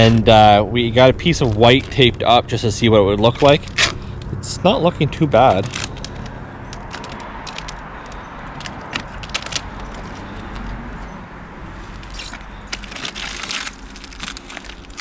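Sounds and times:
vinyl film crinkling: 0.2 - 2.4, 5.4 - 11.1, 11.7 - 15.0.

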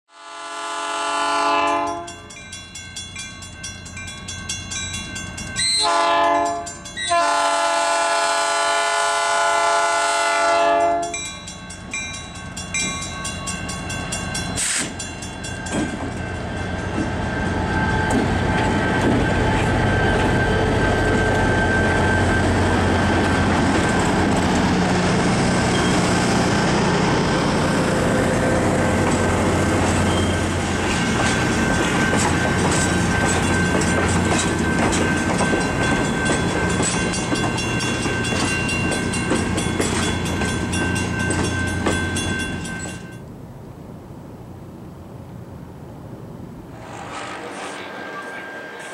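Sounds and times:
locomotive air horn blasts: 0.1 - 2.2, 5.7 - 11.2, 46.8 - 48.9
train wheels on rails: 1.7 - 43.3, 46.6 - 48.9.

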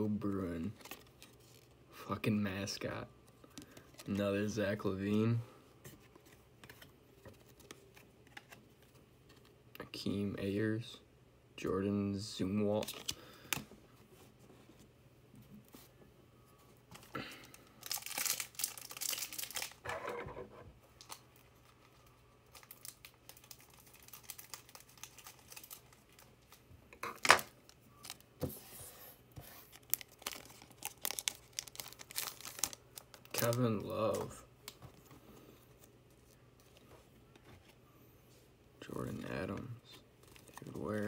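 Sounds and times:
foil wrapper tearing and crinkling: 17.8 - 19.8, 22.4 - 26.2, 29.7 - 33.6.

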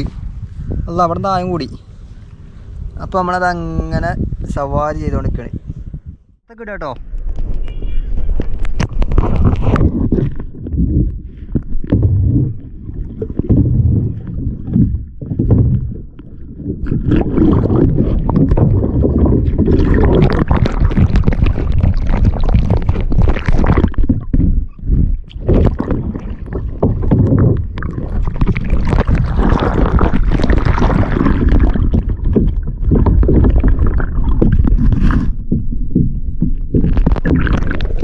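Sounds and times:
water splashing against hull: 7.2 - 38.0
heavy low rumble: 9.0 - 37.9.

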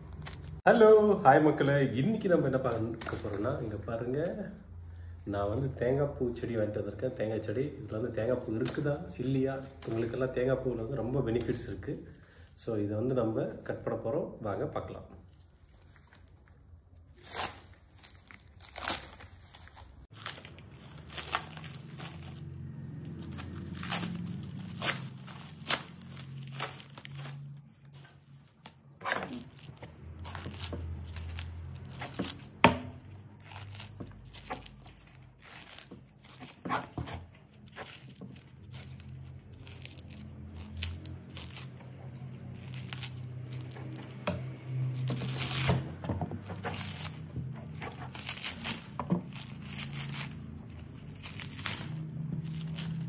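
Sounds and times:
cling film crinkling: 0.0 - 0.7, 15.2 - 53.0
coconut husk fibres tearing: 0.0 - 4.6, 5.2 - 12.4, 15.0 - 53.0.

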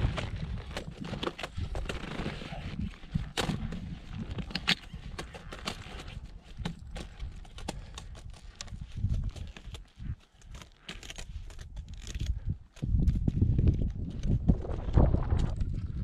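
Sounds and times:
skis and poles clicking: 0.0 - 16.0
wind buffeting microphone: 11.7 - 16.0.

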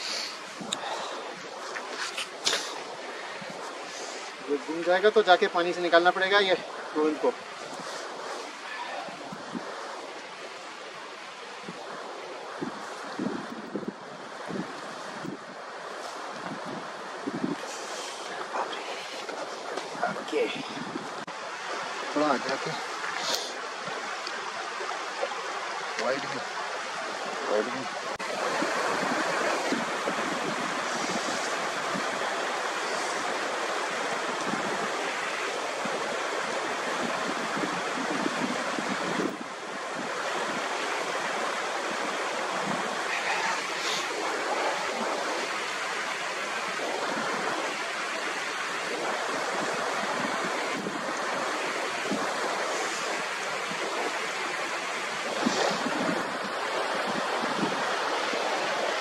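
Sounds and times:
stream rushing over rocks: 0.0 - 59.0.

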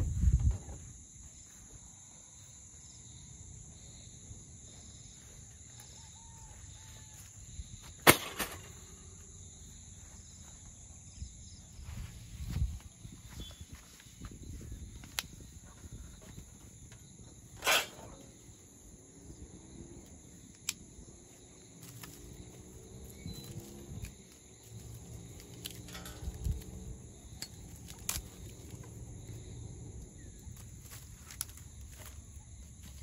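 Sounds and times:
insects buzzing: 0.0 - 33.0
twigs rustling: 21.6 - 29.5, 30.2 - 33.0
dry branches snapping: 21.8 - 22.5, 23.4 - 29.0, 30.5 - 32.2.

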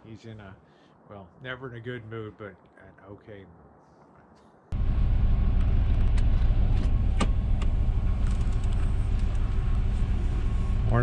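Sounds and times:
vehicle engine idling: 4.8 - 11.0.

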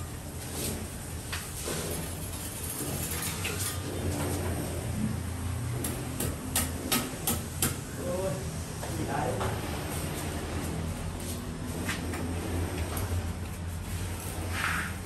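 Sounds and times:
sponge wiping tiles: 13.7 - 15.0.

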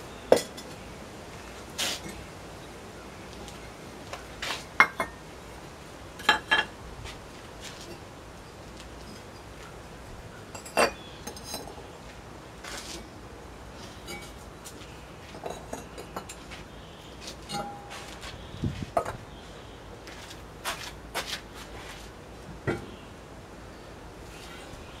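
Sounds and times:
pottery clinking and knocking: 0.3 - 0.7, 4.8 - 5.2, 6.2 - 6.7, 10.5 - 11.8, 15.4 - 16.4, 17.5 - 18.0, 22.6 - 23.0.

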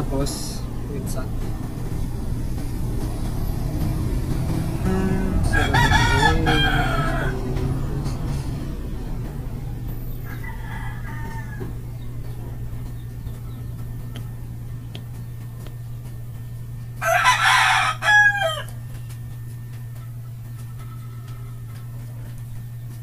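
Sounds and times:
steady low hum: 0.0 - 23.0
rooster crowing: 4.7 - 8.2, 10.1 - 12.1, 17.0 - 18.8.

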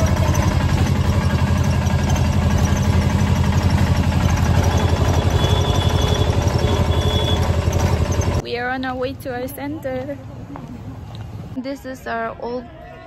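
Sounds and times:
car engine running: 0.0 - 8.4.

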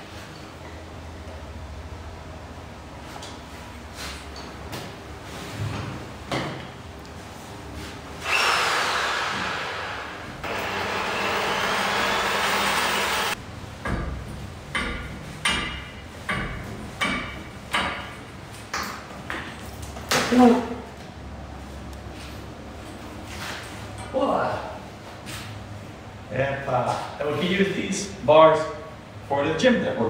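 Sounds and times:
angle grinder cutting metal pipe: 8.2 - 13.4
sharp knocks: 13.8 - 18.2.

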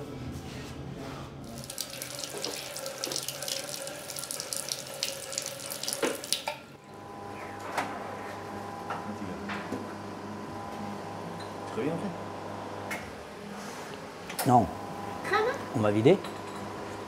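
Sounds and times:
tap water splashing into basin: 1.6 - 6.6.

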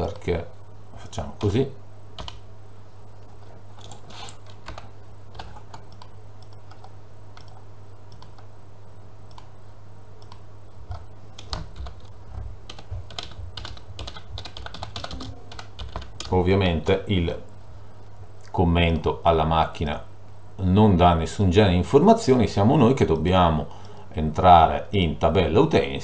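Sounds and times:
steady low hum: 0.0 - 26.0
typing on a keyboard: 2.2 - 2.4, 3.8 - 7.6, 10.2 - 16.3.

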